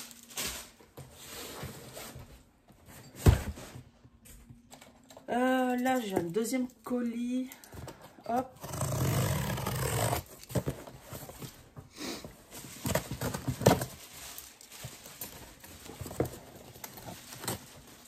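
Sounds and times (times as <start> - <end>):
cardboard box rustling and crackling: 12.4 - 18.0.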